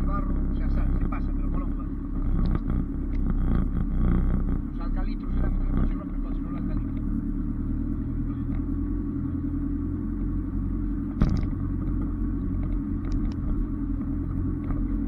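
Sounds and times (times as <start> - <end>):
engine low rumble: 0.0 - 15.0.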